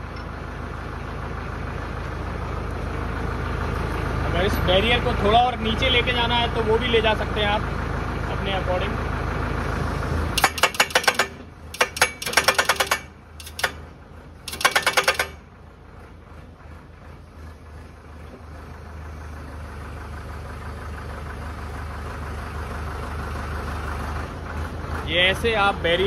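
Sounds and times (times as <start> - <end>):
tractor engine running: 0.0 - 26.0
hydraulic hammer pounding metal post: 10.4 - 15.5.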